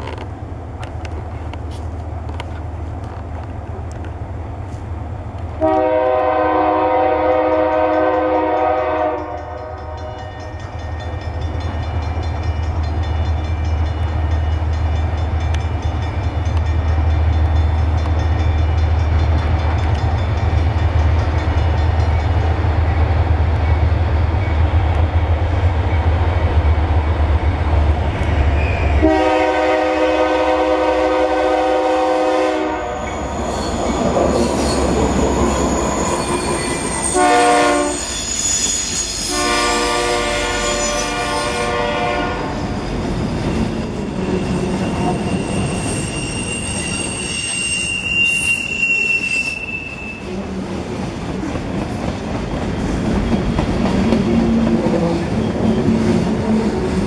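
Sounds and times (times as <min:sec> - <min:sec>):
diesel locomotive engine rumble: 0:00.0 - 0:57.0
multi-tone train horn: 0:05.6 - 0:10.6, 0:28.6 - 0:33.1, 0:35.4 - 0:38.1, 0:39.2 - 0:42.7.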